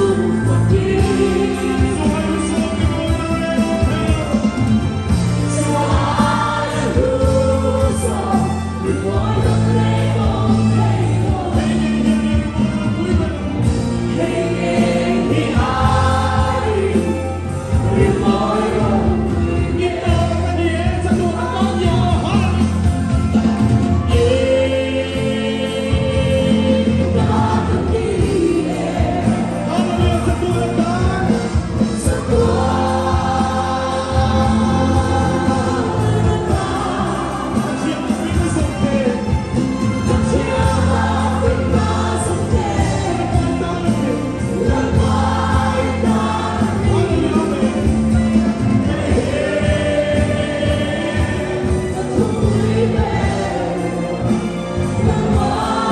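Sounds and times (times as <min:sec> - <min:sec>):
band accompaniment: 0:00.0 - 0:55.9
congregation singing: 0:00.0 - 0:55.9
singer on a microphone: 0:00.0 - 0:55.9.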